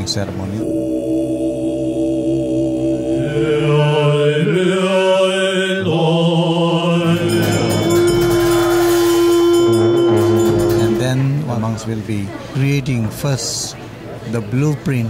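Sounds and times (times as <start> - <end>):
monks chanting in low voices: 0.0 - 11.0
long steady low note: 0.6 - 11.5
hand cymbals clashing: 7.0 - 11.5.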